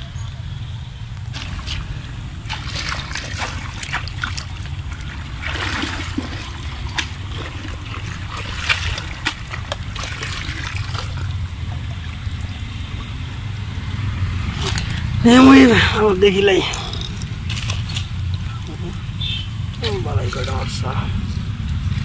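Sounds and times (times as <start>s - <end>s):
steady low rumble: 0.0s - 22.0s
shallow water splashing: 1.2s - 21.1s.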